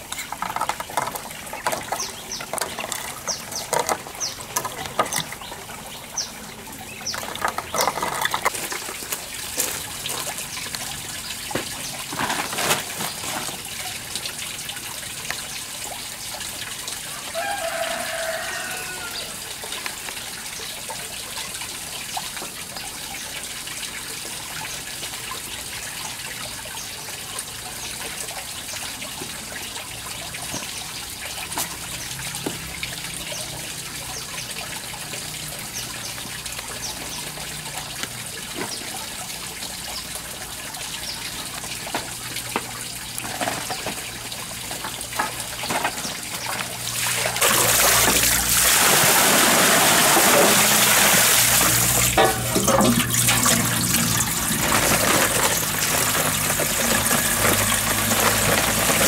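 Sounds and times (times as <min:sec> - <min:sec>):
water running into metal basin: 0:00.0 - 0:59.0
clicks and knocks: 0:00.1 - 0:05.5, 0:07.0 - 0:09.0.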